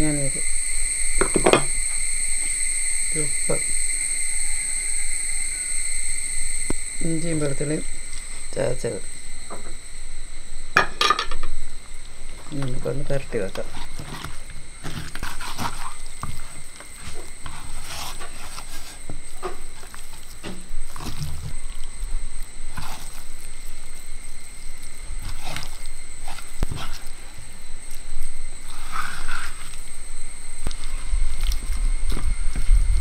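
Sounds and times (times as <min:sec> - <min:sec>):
wet squelching of kneaded meat: 0:13.5 - 0:32.7.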